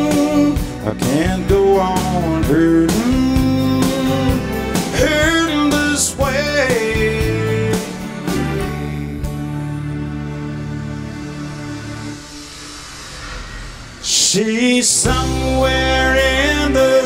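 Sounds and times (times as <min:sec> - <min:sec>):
man singing: 0:00.0 - 0:09.8, 0:14.0 - 0:17.0
band with acoustic guitar: 0:00.0 - 0:11.3, 0:15.1 - 0:17.0.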